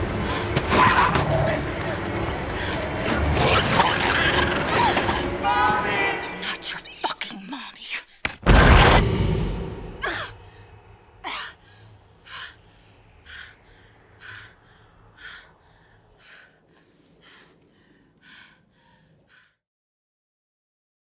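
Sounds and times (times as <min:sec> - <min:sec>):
woman panting: 0:01.6 - 0:03.3, 0:10.0 - 0:19.6.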